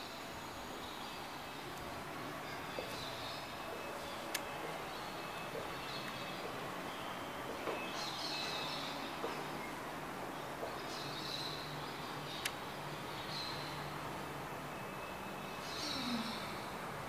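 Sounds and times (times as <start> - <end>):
background ambience: 0.0 - 17.0.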